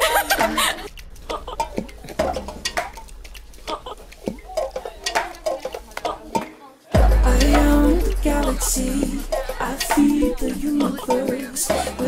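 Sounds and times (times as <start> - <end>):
girl laughing and squealing: 0.0 - 1.6
voices: 3.7 - 12.0.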